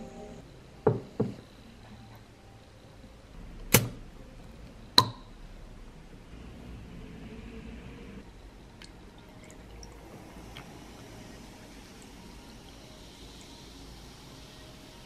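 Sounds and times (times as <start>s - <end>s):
bottle cap metallic clicks: 5.0s - 5.3s
carbonation hiss: 6.3s - 15.0s.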